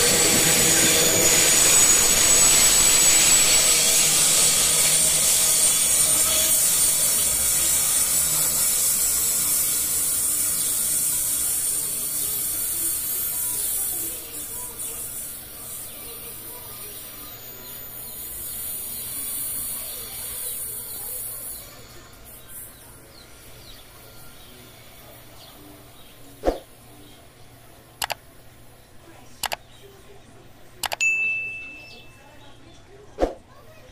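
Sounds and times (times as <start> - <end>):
freight train wheels rolling on rails: 0.0 - 23.5
faint outdoor background: 0.0 - 33.9
mouse clicks: 28.0 - 28.2, 29.4 - 29.6, 30.8 - 31.0
high bell ding: 31.0 - 32.3.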